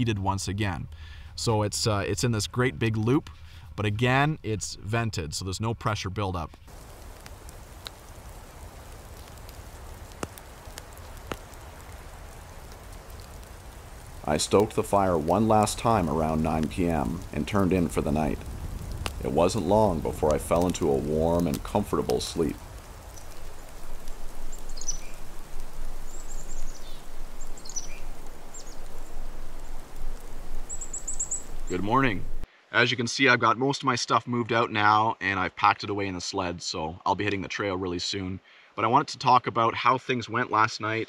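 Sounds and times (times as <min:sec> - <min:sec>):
fire crackling pops: 0:03.0 - 0:03.6, 0:06.4 - 0:32.5
small birds chirping: 0:06.5 - 0:32.5
campfire hissing: 0:06.6 - 0:32.6.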